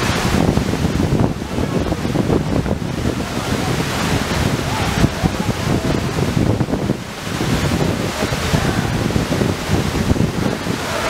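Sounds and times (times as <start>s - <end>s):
waterfall rushing: 0.0s - 11.0s
wind buffeting microphone: 0.0s - 11.0s.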